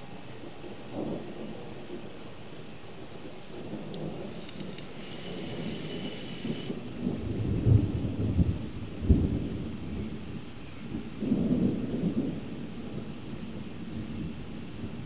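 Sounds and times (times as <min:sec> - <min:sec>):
thunder rumbling: 0:03.2 - 0:15.0.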